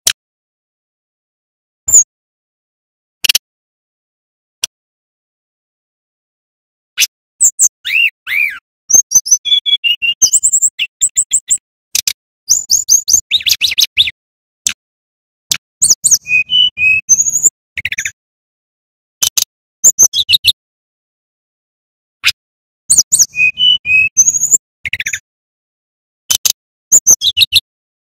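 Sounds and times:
bird singing whistles: 7.4 - 11.6, 12.5 - 14.2, 15.8 - 18.2, 19.8 - 20.6, 22.2 - 25.2, 26.9 - 27.6.

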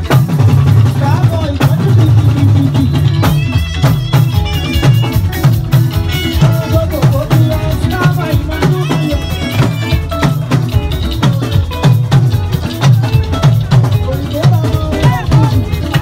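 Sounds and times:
drums and percussion beating: 0.0 - 16.0
live band music: 0.0 - 16.0.

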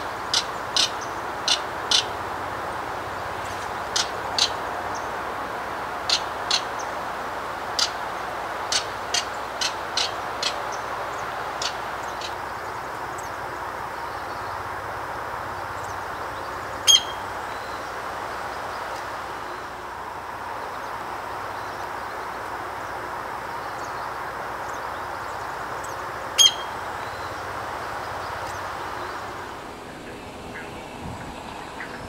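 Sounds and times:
marsh background hiss: 0.0 - 32.0
short sharp bird calls: 16.9 - 17.8, 26.4 - 27.3.

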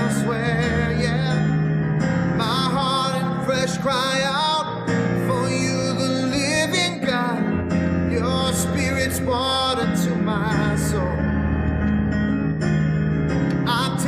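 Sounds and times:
man singing worship song: 0.0 - 1.6, 2.3 - 11.3, 13.6 - 14.0
electric keyboard: 0.0 - 14.0.

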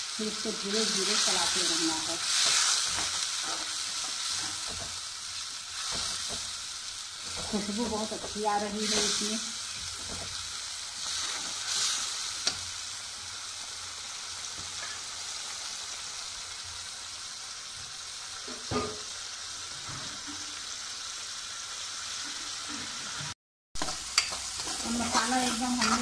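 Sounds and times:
masala sizzling in hot oil: 0.0 - 26.0
metal spatula stirring pan: 1.3 - 5.0, 23.8 - 26.0.

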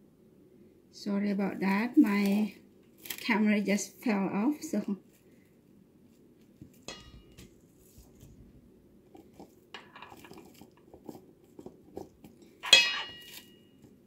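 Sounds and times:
paddle clanking in metal bowl: 6.9 - 7.5, 12.4 - 13.6.

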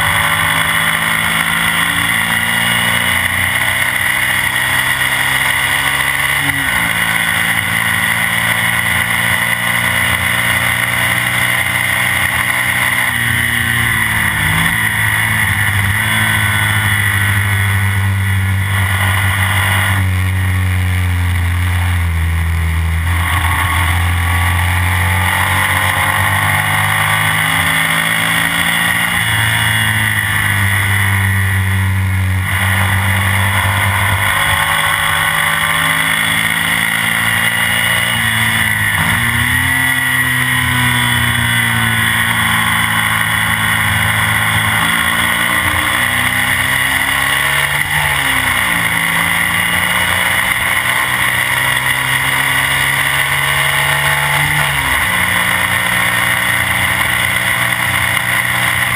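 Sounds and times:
sidecar engine running hard: 0.0 - 58.9
wind and road rush: 0.0 - 58.9.

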